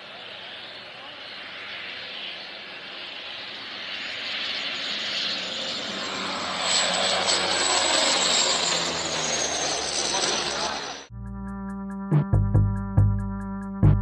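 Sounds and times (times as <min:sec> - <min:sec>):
aircraft engines passing overhead: 0:00.0 - 0:11.1.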